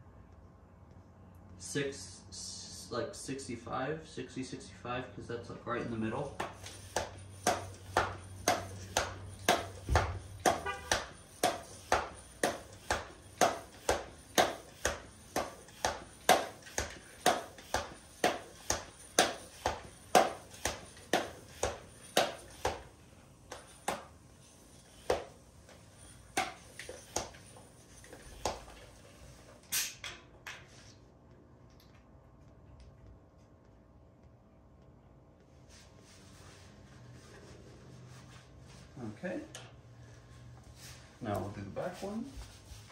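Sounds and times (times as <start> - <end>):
hand tyre pump strokes: 6.2 - 29.1.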